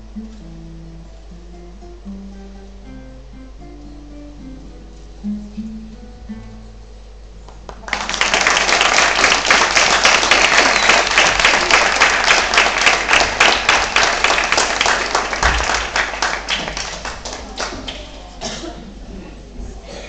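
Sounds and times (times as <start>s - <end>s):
audience applauding: 7.5s - 18.4s.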